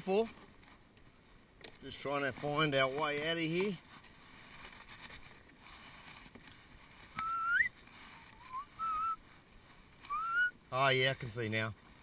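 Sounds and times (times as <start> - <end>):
rising whistle: 7.2 - 7.7, 8.4 - 9.2, 10.1 - 10.5.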